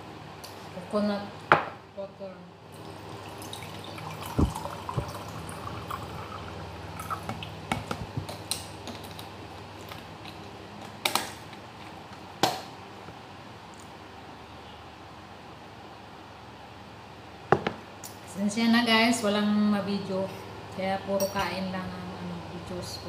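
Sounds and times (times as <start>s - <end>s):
liquid pouring into mug: 2.8s - 8.1s.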